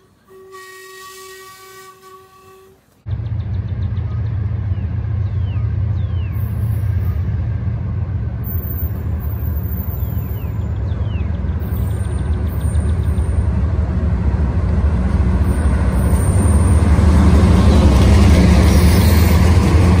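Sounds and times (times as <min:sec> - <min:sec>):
birds chirping: 0:03.1 - 0:07.4, 0:09.3 - 0:13.6
loud low rumble: 0:03.1 - 0:09.5.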